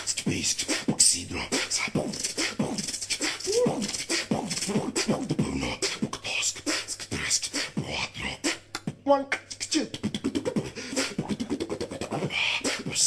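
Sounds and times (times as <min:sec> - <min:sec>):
man beatboxing: 0:00.0 - 0:13.0.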